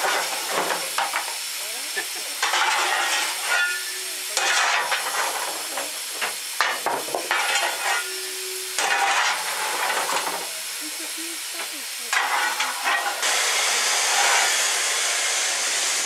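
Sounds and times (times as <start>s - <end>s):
shovel scraping coal: 0.0s - 1.4s, 2.4s - 10.5s, 12.1s - 14.7s
steam hissing: 0.0s - 16.0s.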